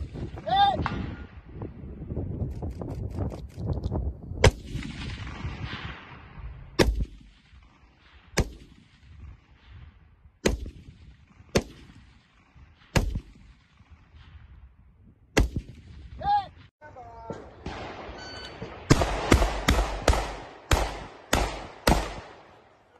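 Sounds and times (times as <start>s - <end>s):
rifle shots with echo: 4.4s - 14.5s, 15.4s - 16.1s, 17.3s - 22.9s.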